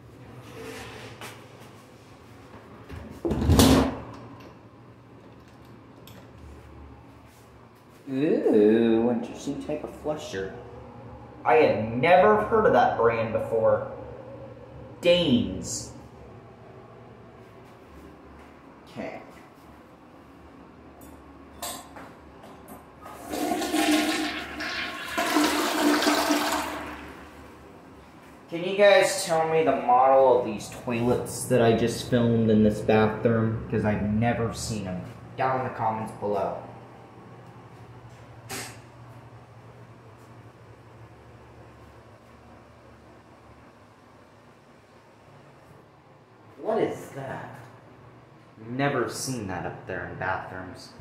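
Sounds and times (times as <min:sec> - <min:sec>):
low room hum: 0:00.0 - 0:51.0
water rushing into toilet bowl: 0:23.1 - 0:27.5.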